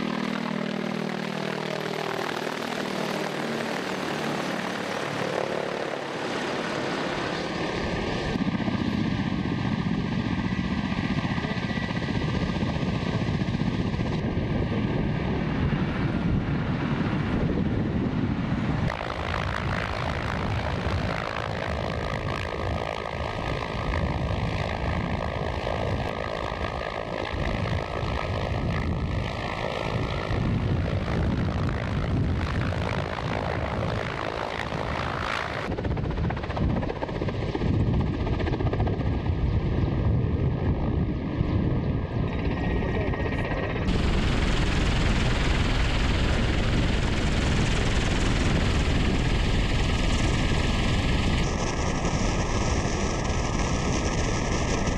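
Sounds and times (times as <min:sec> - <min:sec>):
helicopter rotor and turbine noise: 0:00.0 - 0:54.9.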